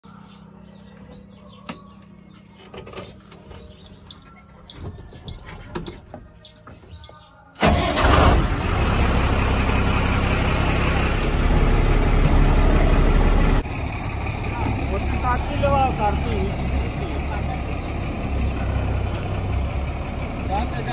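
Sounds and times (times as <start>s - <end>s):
diesel engine running: 7.6s - 20.9s.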